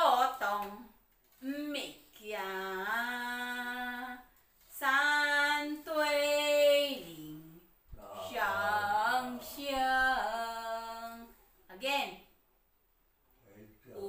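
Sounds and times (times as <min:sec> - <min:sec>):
woman singing unaccompanied: 0:02.2 - 0:11.4.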